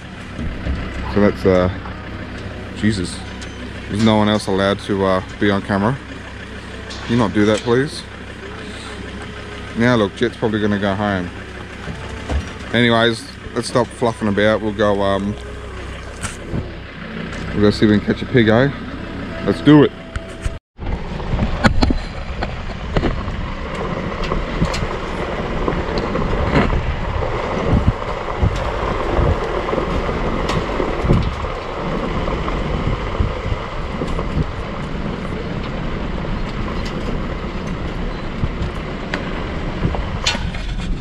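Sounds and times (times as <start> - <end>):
knocks and rattles over bumps: 0.0 - 19.3, 20.2 - 41.0
engine and tyre rumble: 0.0 - 41.0
wind on microphone: 20.2 - 41.0.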